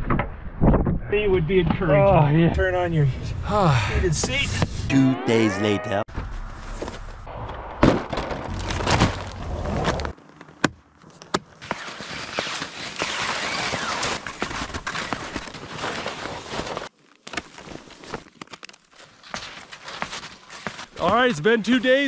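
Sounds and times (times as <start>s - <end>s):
rumbling noise: 6.1s - 10.1s
skis sliding over snow: 11.6s - 16.9s, 19.1s - 22.0s.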